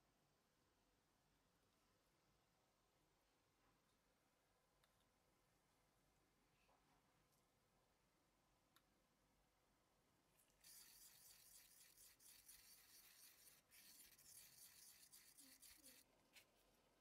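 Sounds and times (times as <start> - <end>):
stick scraping plastic cup: 10.6 - 16.5.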